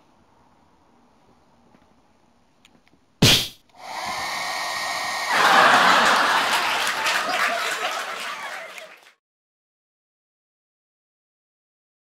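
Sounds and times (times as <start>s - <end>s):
hair dryer blowing with whine: 3.8s - 7.0s.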